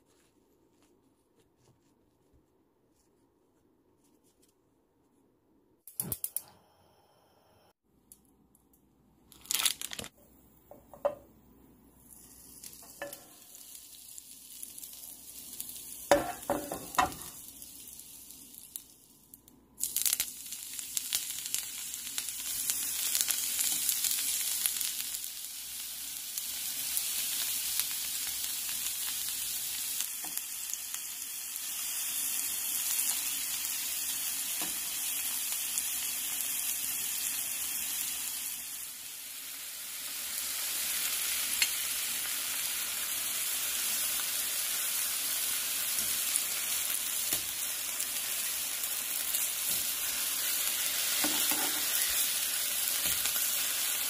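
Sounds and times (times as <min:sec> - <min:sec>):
butter sizzling in frying pan: 0:12.0 - 0:19.1, 0:19.8 - 0:54.0.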